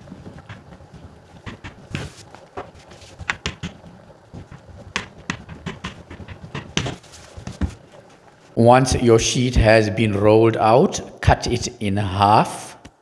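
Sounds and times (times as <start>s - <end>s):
rolling pin rumbling on dough: 0.0s - 8.0s
rolling pin knocks and clicks: 0.2s - 7.8s.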